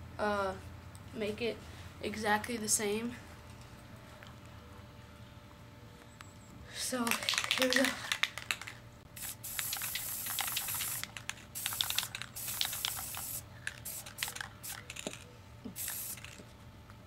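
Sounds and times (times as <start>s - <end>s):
quick clicks: 7.1s - 16.4s
spray paint can hissing: 7.1s - 16.4s.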